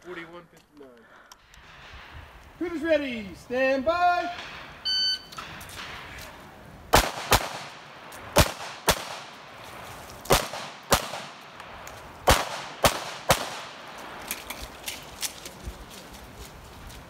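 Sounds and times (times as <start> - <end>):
pistol shots with echo: 6.9 - 9.5, 10.3 - 14.0.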